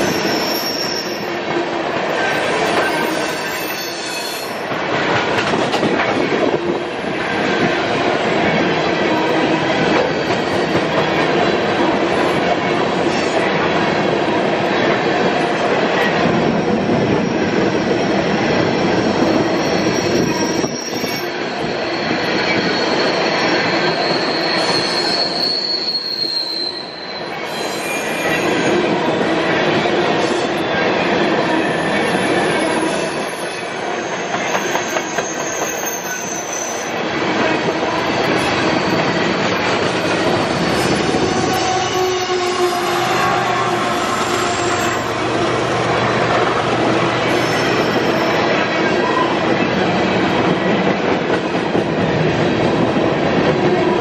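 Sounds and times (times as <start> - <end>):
high wheel squeals: 0.0 - 1.3, 2.4 - 4.6, 19.4 - 28.8, 31.7 - 37.0, 40.4 - 45.1
train wheels rumbling on rails: 0.0 - 54.0
diesel locomotive engine: 4.5 - 54.0.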